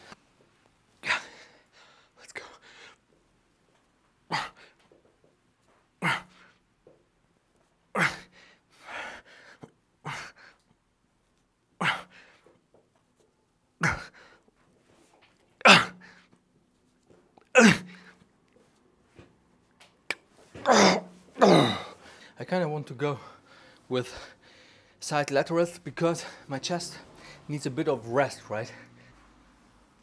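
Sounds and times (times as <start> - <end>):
man grunting exhalations: 20.6 - 22.0.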